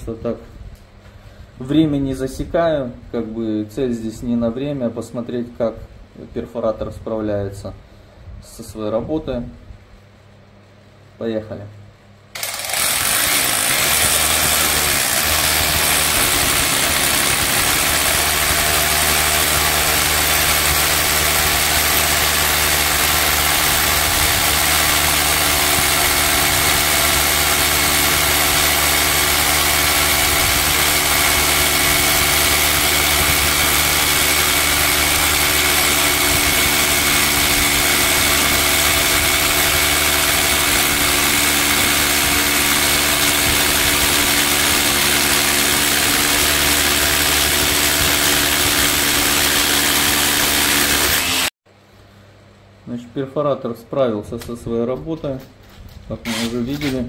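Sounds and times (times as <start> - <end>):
rotary hammer drilling: 12.4 - 51.6, 56.2 - 57.0.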